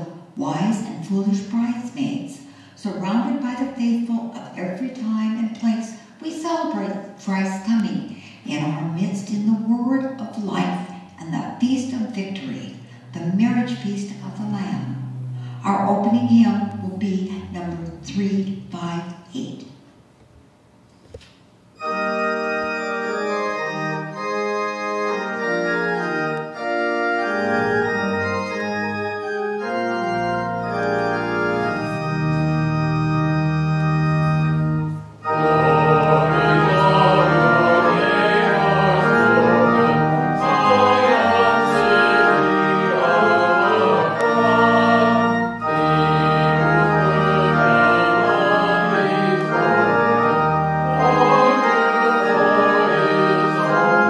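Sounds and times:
church organ playing chords: 10.6 - 19.2, 21.6 - 54.0.

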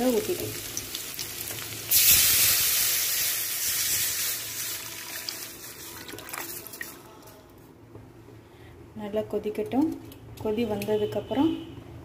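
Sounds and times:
liquid sizzling in hot oil: 0.0 - 7.0.

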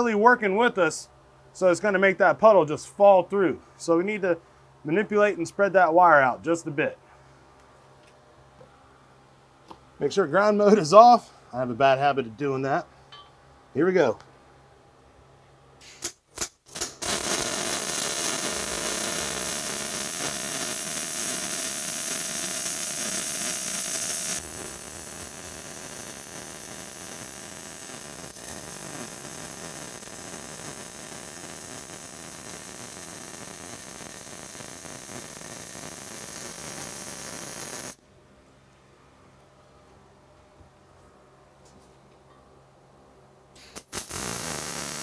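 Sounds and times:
welding arc: 15.8 - 38.0, 43.6 - 45.0.

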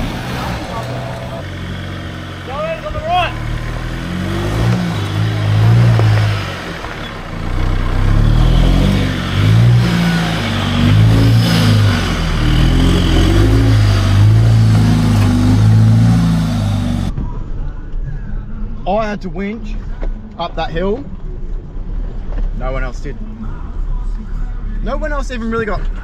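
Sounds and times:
truck engine revving under load: 0.0 - 17.2.

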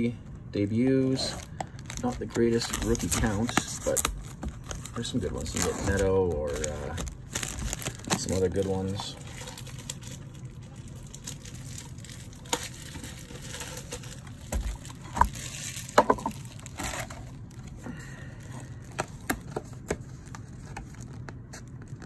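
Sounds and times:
cardboard box and shrink-wrap handled: 1.1 - 17.8.

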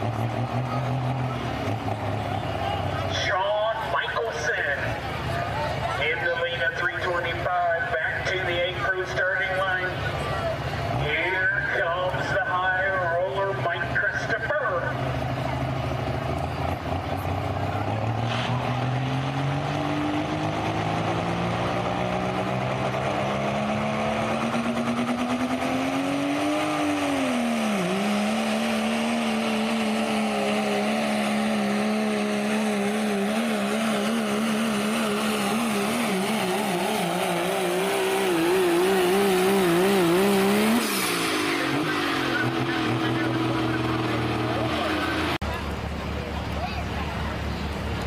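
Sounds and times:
diesel truck engine at full throttle: 0.0 - 48.0.

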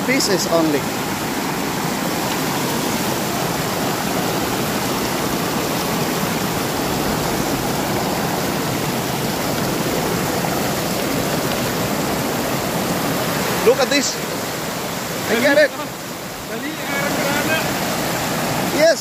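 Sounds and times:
water rushing over rocks: 0.0 - 19.0.

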